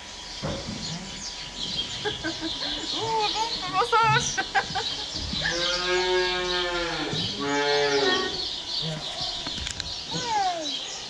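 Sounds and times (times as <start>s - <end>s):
cow mooing: 5.4s - 8.4s.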